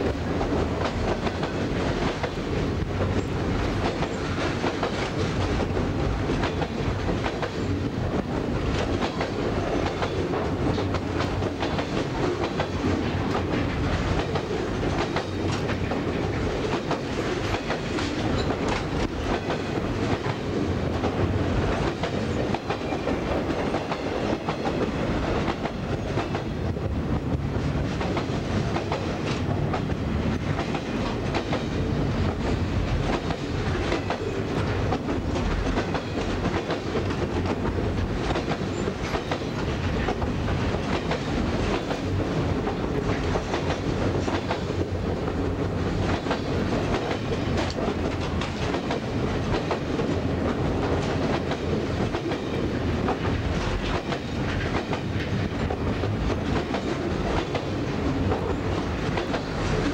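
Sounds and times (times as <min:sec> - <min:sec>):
train rumble: 0:00.0 - 0:59.9
steel wheels clacking over rail joints: 0:00.1 - 0:59.9.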